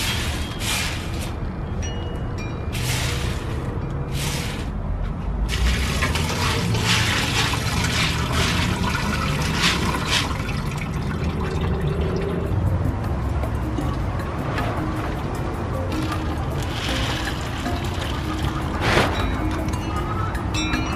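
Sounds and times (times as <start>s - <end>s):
dried peas poured into bowl: 16.0s - 17.6s.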